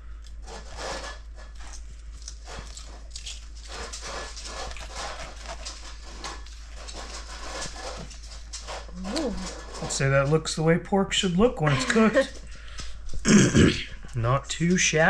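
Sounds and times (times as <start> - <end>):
knife sawing through meat: 0.4 - 9.8.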